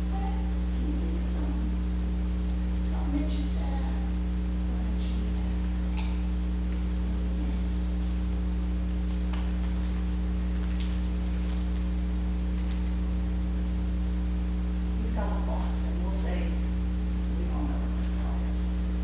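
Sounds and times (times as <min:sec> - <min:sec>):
electrical mains hum: 0:00.0 - 0:19.0
faint ticks and rustles: 0:08.9 - 0:13.1.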